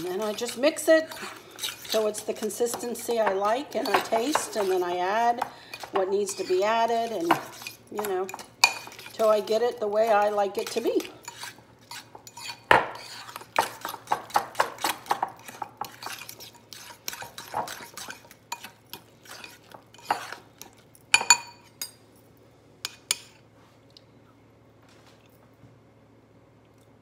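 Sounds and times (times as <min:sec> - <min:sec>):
fork scraping ceramic bowl: 0:00.0 - 0:05.0, 0:05.7 - 0:09.5, 0:10.1 - 0:20.8.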